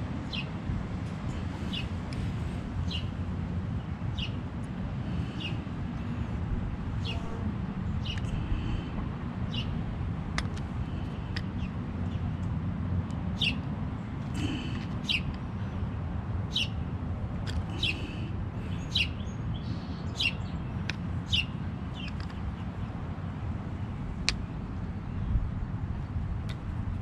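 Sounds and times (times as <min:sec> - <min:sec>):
steady low rumble: 0:00.0 - 0:27.0
small birds chirping: 0:00.2 - 0:00.6, 0:01.3 - 0:03.2, 0:03.8 - 0:04.4, 0:05.1 - 0:06.2, 0:07.0 - 0:09.8, 0:10.4 - 0:12.6, 0:13.4 - 0:13.6, 0:14.4 - 0:15.9, 0:16.5 - 0:25.5.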